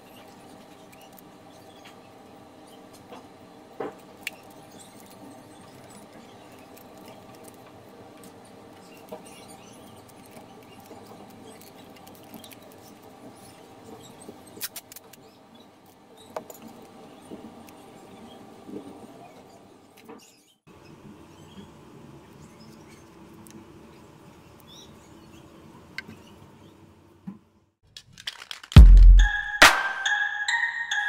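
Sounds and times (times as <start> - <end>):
paper rustling: 28.0 - 29.2.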